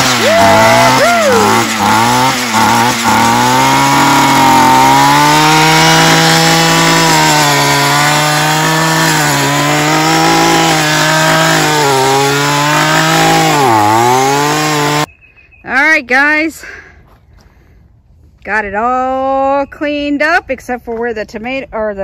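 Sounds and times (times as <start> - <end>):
string trimmer engine running: 0.0 - 15.1.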